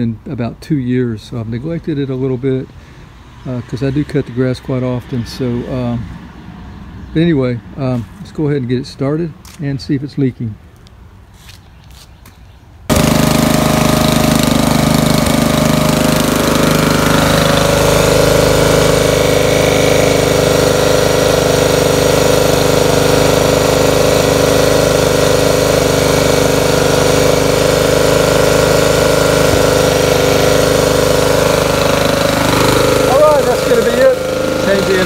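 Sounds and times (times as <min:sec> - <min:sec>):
mower engine running: 0:12.9 - 0:35.0.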